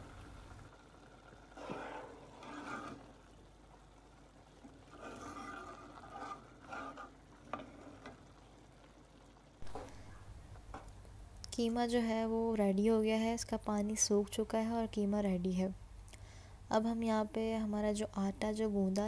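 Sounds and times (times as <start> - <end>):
faint sizzle: 0.0 - 19.0
metal spoon scraping in pot: 1.5 - 3.2, 4.9 - 8.2.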